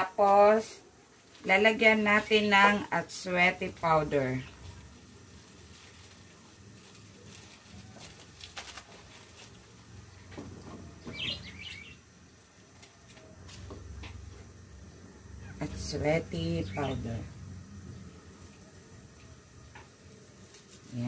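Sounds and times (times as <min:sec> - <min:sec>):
plastic sachets crinkling and tearing: 0:04.9 - 0:10.0
bird chirp: 0:11.0 - 0:12.0.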